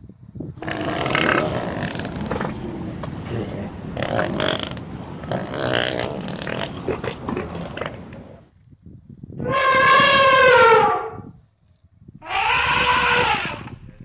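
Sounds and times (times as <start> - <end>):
elephant calling: 9.4 - 11.2, 12.2 - 13.7.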